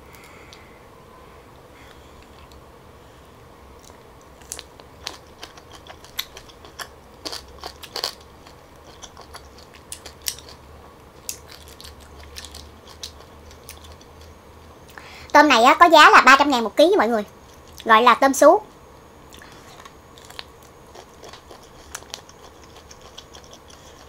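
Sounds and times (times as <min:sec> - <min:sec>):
prawn shell crunching when chewed: 0:03.8 - 0:14.8, 0:19.3 - 0:24.0.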